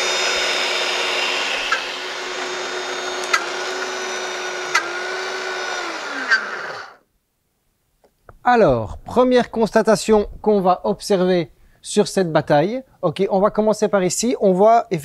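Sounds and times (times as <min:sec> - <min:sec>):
blenders grinding: 0:00.0 - 0:07.0
motor winding down whine: 0:00.0 - 0:07.0
blender control clicks: 0:03.2 - 0:04.0, 0:04.7 - 0:05.0.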